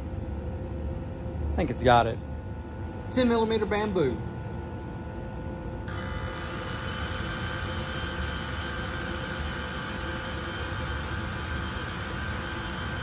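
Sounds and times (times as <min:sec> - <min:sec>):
fans whirring and hissing: 0:00.0 - 0:13.0
faint high whine: 0:04.7 - 0:13.0.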